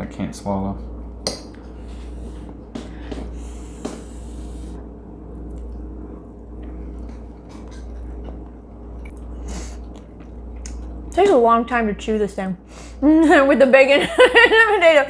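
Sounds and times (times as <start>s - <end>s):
steady low hum: 0.0s - 15.0s
soft chewing: 5.3s - 5.9s, 6.5s - 11.2s.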